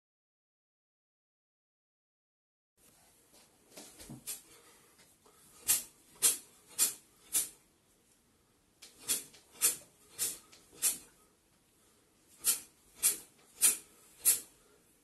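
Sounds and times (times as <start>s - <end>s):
punches swishing: 9.0s - 11.1s.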